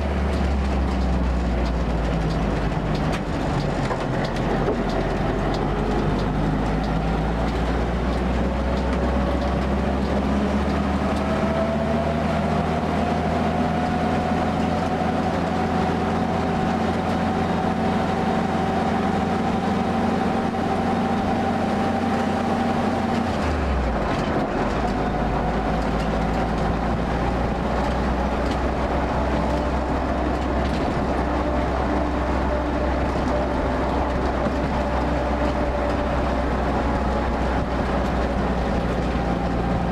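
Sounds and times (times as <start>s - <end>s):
car engine running: 0.0s - 39.9s
drivetrain whine: 0.0s - 39.9s.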